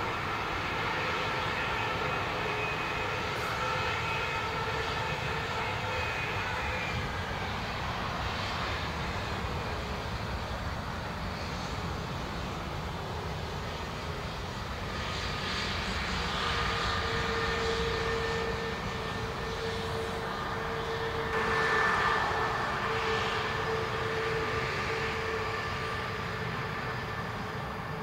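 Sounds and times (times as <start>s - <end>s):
high jet engine whine: 0.0s - 28.0s
jet engines rumbling: 0.0s - 28.0s.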